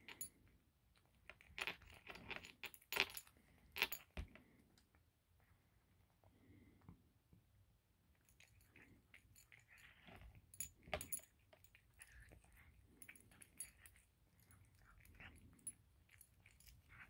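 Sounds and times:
cat chewing crunchy food: 1.2s - 4.6s, 8.3s - 17.0s.

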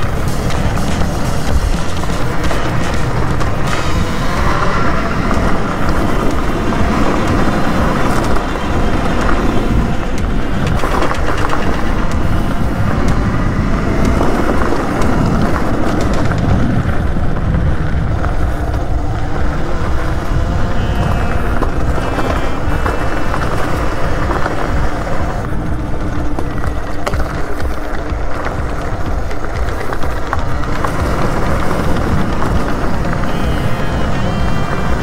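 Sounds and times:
tyres rolling over loose stones: 0.0s - 35.0s
wind rushing on microphone: 0.0s - 35.0s.

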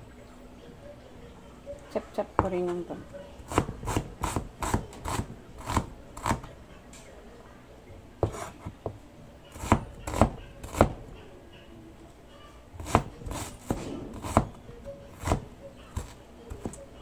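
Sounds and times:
cleaver chopping on wooden board: 12.8s - 14.6s.

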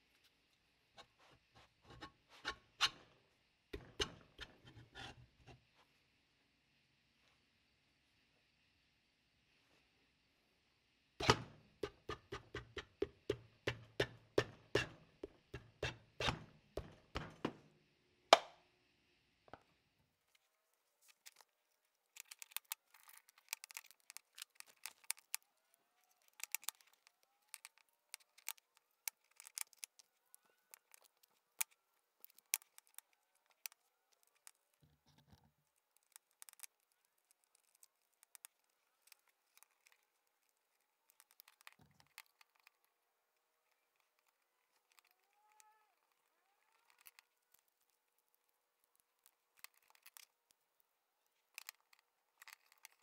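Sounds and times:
metal parts clicking: 22.1s - 25.4s, 26.1s - 34.7s, 36.0s - 40.0s, 48.9s - 50.4s, 51.5s - 53.0s.

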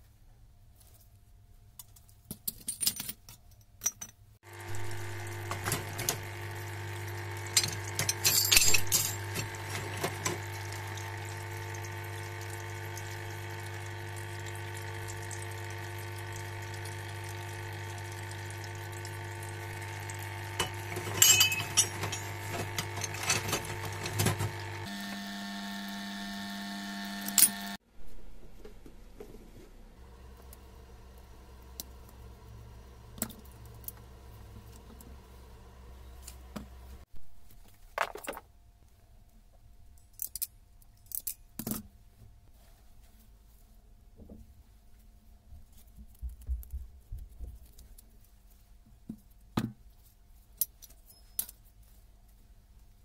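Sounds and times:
metal parts clinking: 1.9s - 4.2s, 7.6s - 9.2s, 20.6s - 23.7s, 40.0s - 41.8s
parts-cleaning machine humming: 4.5s - 27.8s, 30.0s - 37.1s.

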